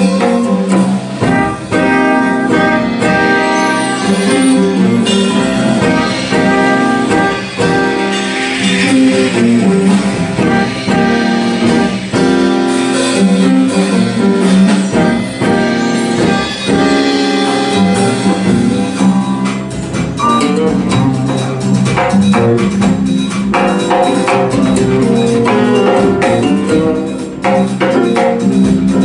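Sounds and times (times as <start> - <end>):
guitar: 0.0 - 29.0
horns: 0.0 - 29.0
live band playing: 0.0 - 29.0
piano: 0.0 - 29.0.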